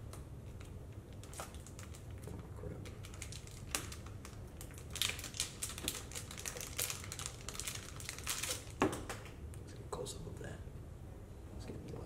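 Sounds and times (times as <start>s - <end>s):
plastic bag crinkling: 1.1s - 9.3s.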